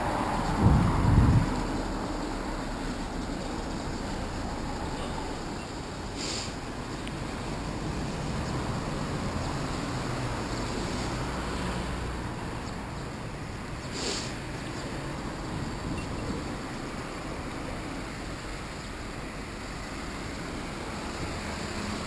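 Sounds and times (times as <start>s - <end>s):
wind on microphone: 0.0s - 1.9s
road traffic rumble: 0.0s - 22.0s
brief hisses: 6.2s - 6.6s, 13.9s - 14.4s.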